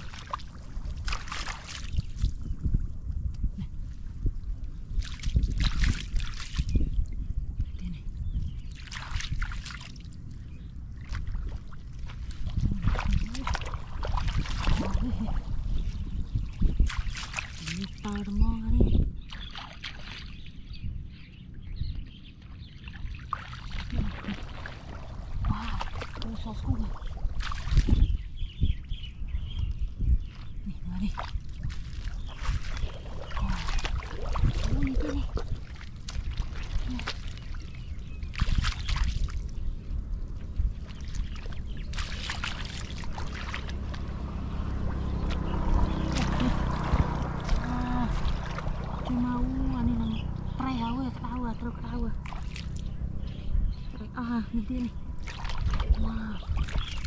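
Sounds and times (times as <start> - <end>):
boots squelching through water: 0.0 - 2.4, 5.0 - 6.9, 8.6 - 18.4, 19.2 - 20.6, 22.4 - 28.1, 30.2 - 54.3, 54.9 - 57.0
trickling water: 0.0 - 20.6, 22.4 - 28.1, 30.3 - 57.0
low rumble: 0.0 - 57.0.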